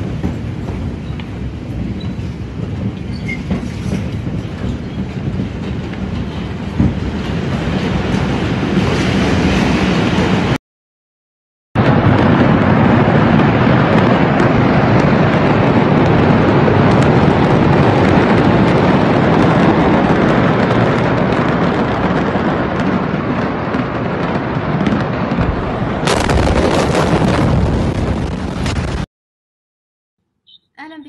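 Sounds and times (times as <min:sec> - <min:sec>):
large fire roaring: 0:00.0 - 0:10.6, 0:11.8 - 0:29.1
explosions: 0:11.8 - 0:29.1.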